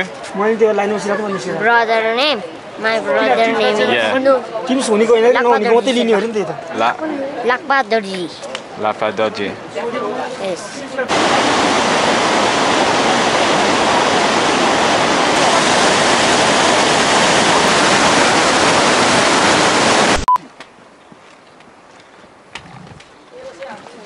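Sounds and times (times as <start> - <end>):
stream rushing over boulders: 10.5 - 20.3.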